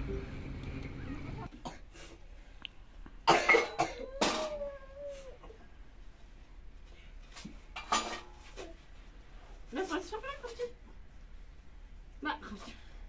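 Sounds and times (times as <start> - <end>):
person coughing: 3.3 - 4.4.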